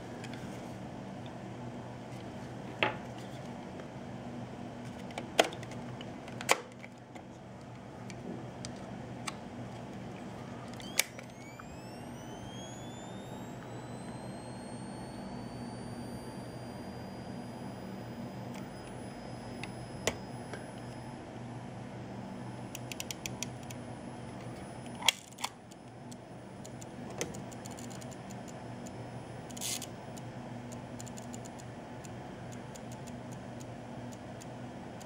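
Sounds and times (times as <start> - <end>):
flash charging whine: 10.8 - 35.0.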